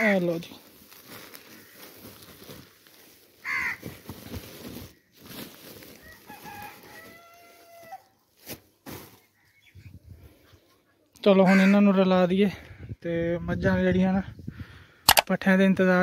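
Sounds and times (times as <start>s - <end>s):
dry fodder rustling: 0.0s - 9.3s
rooster crowing: 6.0s - 8.1s.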